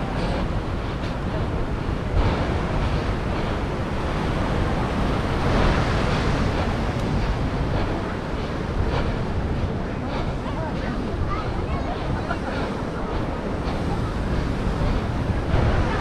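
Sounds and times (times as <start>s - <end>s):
ocean surf rushing: 0.0s - 16.0s
wind buffeting microphone: 0.0s - 16.0s.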